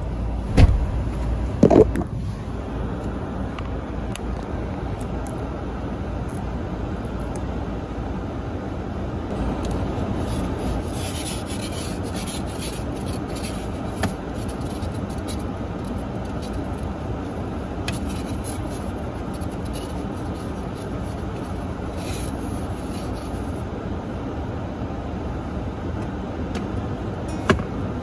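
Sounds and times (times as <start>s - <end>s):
steady low rumble: 0.0s - 11.3s
ice scraper scratching frost: 10.2s - 15.5s.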